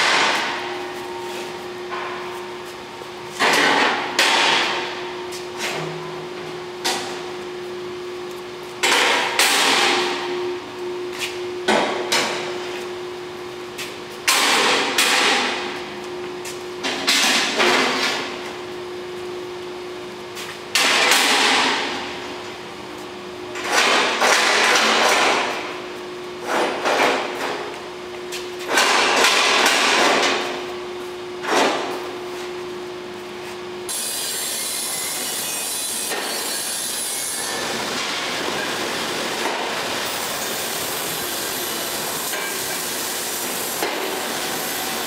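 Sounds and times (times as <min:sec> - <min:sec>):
steady welder hum: 0:32.0 - 0:45.0.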